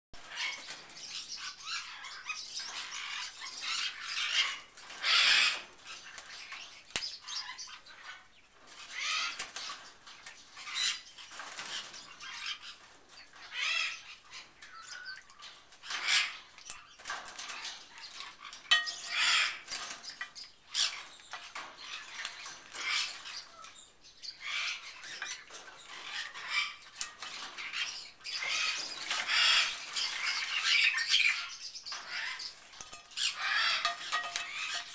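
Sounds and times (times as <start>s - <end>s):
bird splashing and wing-flapping: 26.9s - 30.8s.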